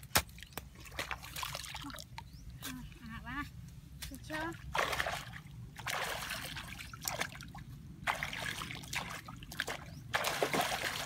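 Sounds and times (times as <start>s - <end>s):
feet wading through muddy water: 4.5s - 11.0s.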